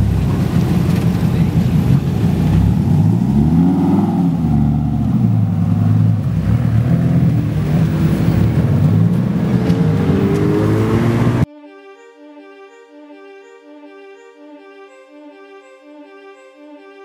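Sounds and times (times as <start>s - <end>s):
car engine and exhaust at low revs: 0.0s - 11.5s.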